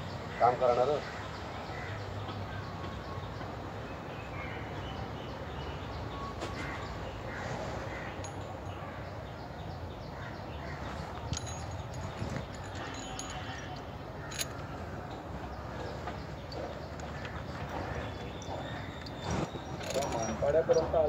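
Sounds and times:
low background noise: 0:00.0 - 0:21.0.

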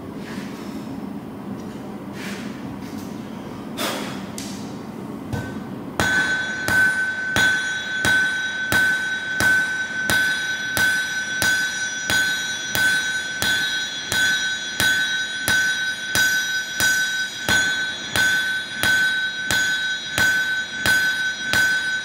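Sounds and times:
hammer striking blade on anvil: 0:05.3 - 0:22.0
high metallic ringing: 0:05.4 - 0:22.0.

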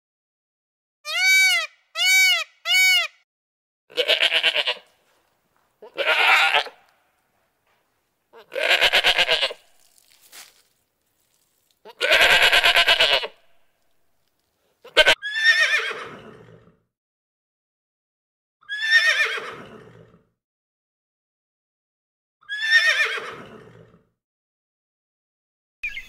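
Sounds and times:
goats bleating: 0:03.9 - 0:04.9, 0:05.8 - 0:06.8, 0:08.4 - 0:09.6, 0:11.8 - 0:13.3, 0:14.8 - 0:15.2.

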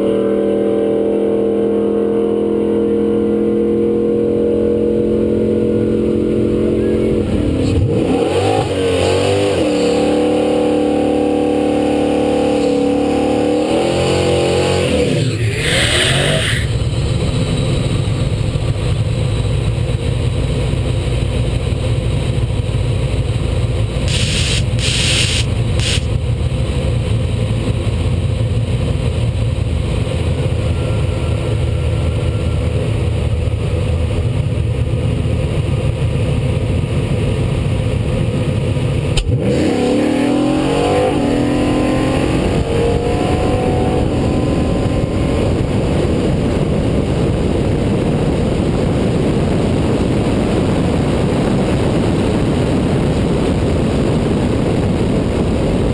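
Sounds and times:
race car engine revving and accelerating: 0:00.0 - 0:18.2, 0:39.1 - 0:48.4.

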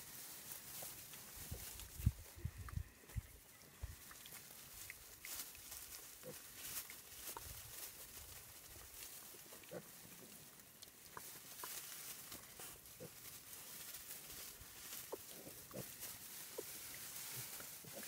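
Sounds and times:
steady hiss: 0:00.0 - 0:02.4
piglets grunting and squeaking: 0:06.0 - 0:07.6, 0:09.3 - 0:10.5, 0:12.5 - 0:13.6, 0:14.4 - 0:18.0.

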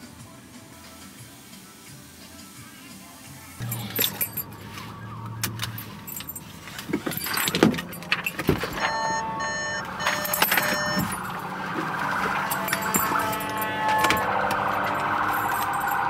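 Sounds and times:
keys jingling: 0:03.6 - 0:04.8, 0:05.5 - 0:16.0
clicks and rustles in car seat: 0:03.9 - 0:09.0
car warning chime: 0:07.2 - 0:16.0.

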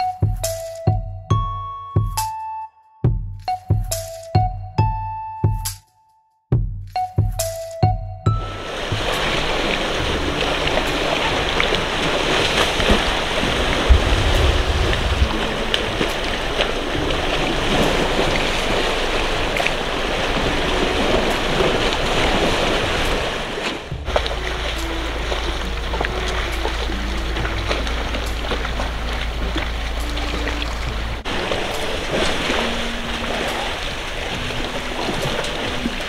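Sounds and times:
mud sloshing and splashing: 0:08.6 - 0:36.0
wind on microphone: 0:08.8 - 0:36.0.

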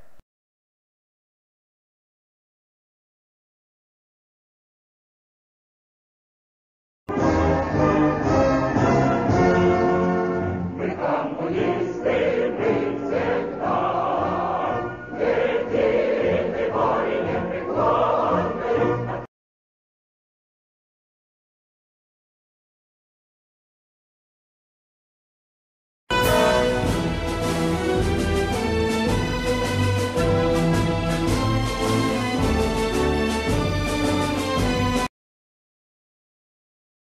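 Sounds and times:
choir singing: 0:09.1 - 0:19.3, 0:26.1 - 0:35.0
instrumental background music: 0:26.1 - 0:35.1.

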